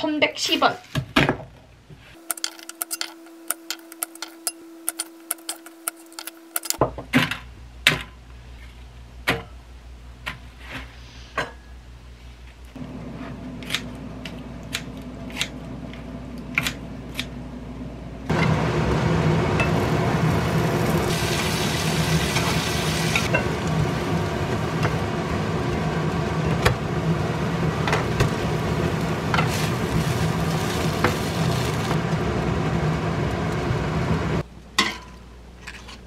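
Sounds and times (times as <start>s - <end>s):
knocks and clinks: 2.2s - 6.8s
low hum: 12.7s - 34.6s.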